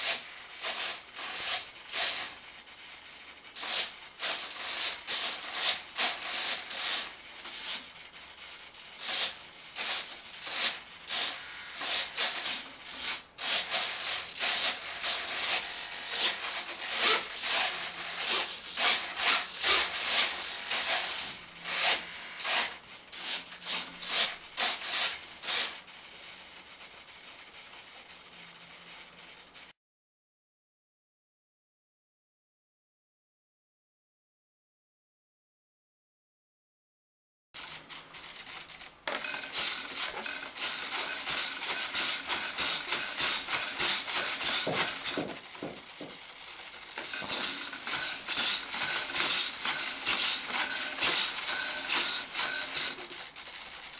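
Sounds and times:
servos whirring: 9.0 - 25.8, 38.2 - 53.9.

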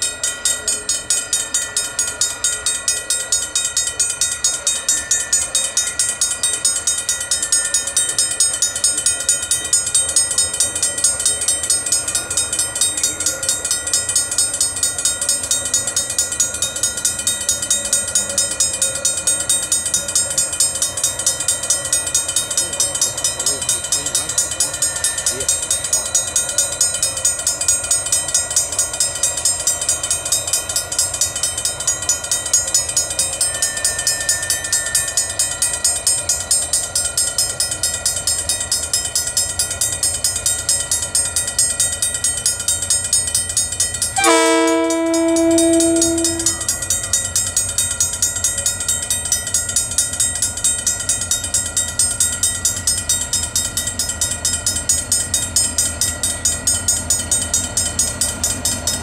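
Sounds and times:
diesel locomotives under power: 0.0 - 59.0
locomotive horn blast: 44.2 - 46.8.

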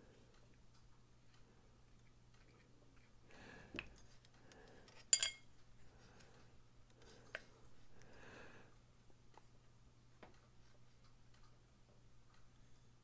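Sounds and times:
steel knife parts clinking: 5.0 - 5.5.

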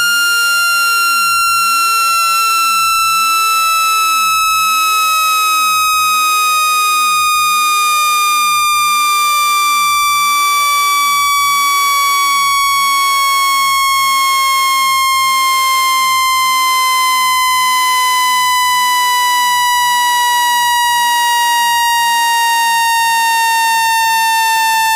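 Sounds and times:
buzzy tone gliding down in pitch: 17.3 - 24.9.

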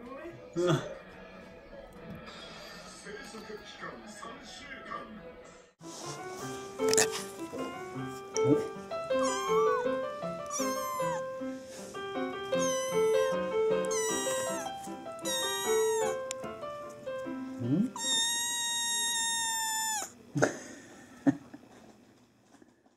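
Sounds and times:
kitten meowing: 6.9 - 7.2, 8.4 - 11.4, 12.5 - 16.4, 17.8 - 20.2.

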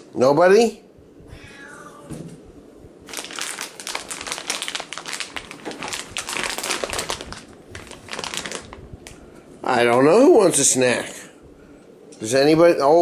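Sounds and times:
plastic bag crinkling: 3.0 - 9.2.

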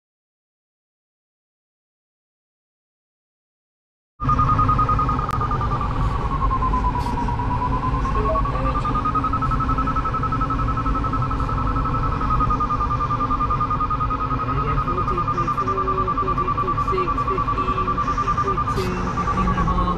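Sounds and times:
low cockpit rumble: 4.2 - 19.9
variometer high beeps: 4.2 - 19.9.

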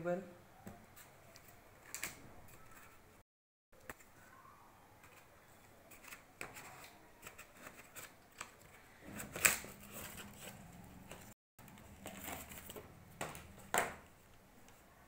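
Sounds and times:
cardboard scraping and rustling: 5.9 - 12.9.

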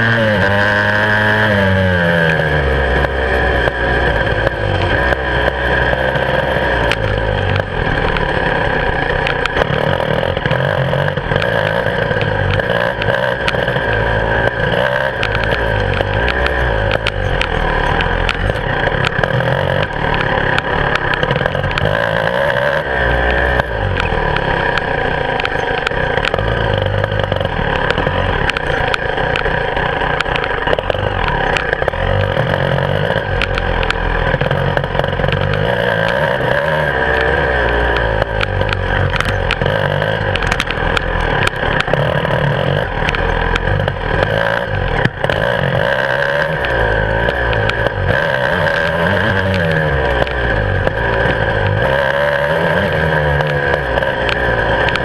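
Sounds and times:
motorcycle engine revving: 0.0 - 55.0
knocks and rattles: 3.0 - 36.6, 37.2 - 46.0.

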